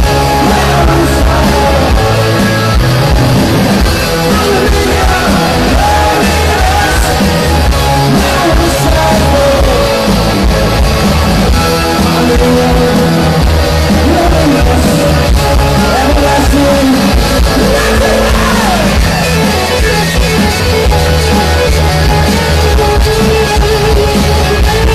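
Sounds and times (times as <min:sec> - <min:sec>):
person singing: 0:00.0 - 0:02.5, 0:04.0 - 0:10.6, 0:11.8 - 0:19.4
electric guitar: 0:00.0 - 0:24.9
rock band playing live: 0:00.0 - 0:24.9.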